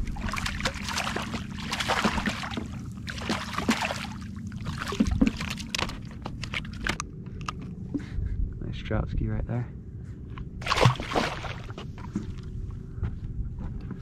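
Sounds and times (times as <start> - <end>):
water lapping against boat hull: 0.0 - 8.1, 10.4 - 12.5
steady low hum: 0.0 - 14.0.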